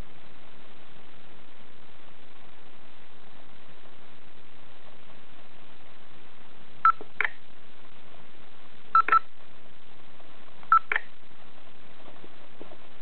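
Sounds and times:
background hiss: 0.0s - 13.0s
stylus tapping screen: 9.0s - 9.2s
electronic key beeps: 9.0s - 9.3s, 10.7s - 11.1s.

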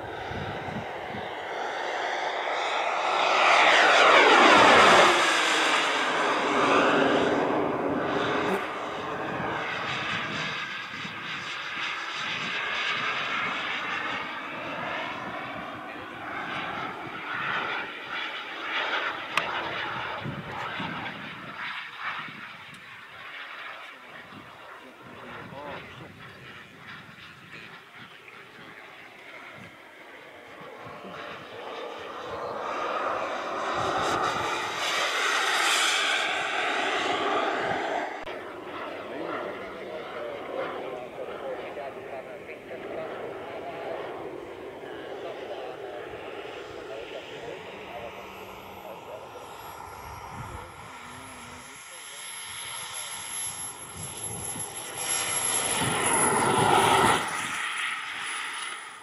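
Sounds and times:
model jet turbine whining past: 0.0s - 59.0s.

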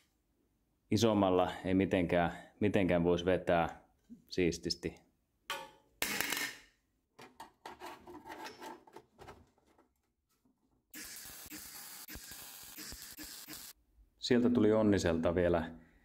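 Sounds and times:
metal plate scraping and rubbing: 7.6s - 9.1s
arc welding hiss: 11.0s - 13.8s.

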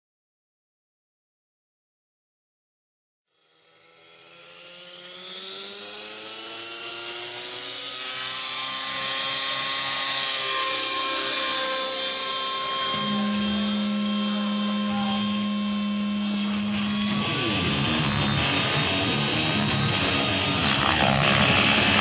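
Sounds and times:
model helicopter engine whine: 3.3s - 22.0s
steady low tone: 11.0s - 22.0s.

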